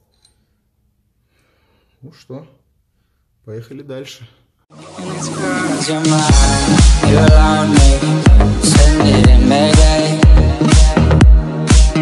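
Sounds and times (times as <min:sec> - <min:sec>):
electronic dance music: 0:04.7 - 0:12.0
steady kick drum: 0:06.3 - 0:12.0.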